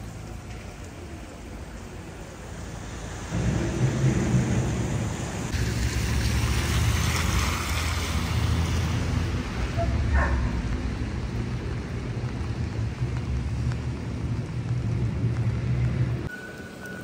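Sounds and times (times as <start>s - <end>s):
steady rain: 0.0s - 17.0s
wet street hiss: 0.0s - 17.0s
low rumble: 3.3s - 7.0s.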